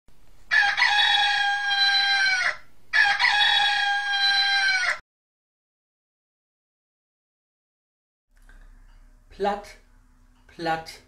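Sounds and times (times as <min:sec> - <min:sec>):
rooster crowing: 0:00.5 - 0:05.0.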